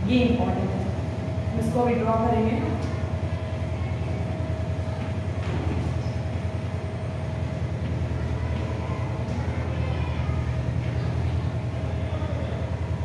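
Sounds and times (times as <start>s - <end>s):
faint steady whine: 0.0s - 13.0s
low mechanical hum with flutter: 0.0s - 13.0s.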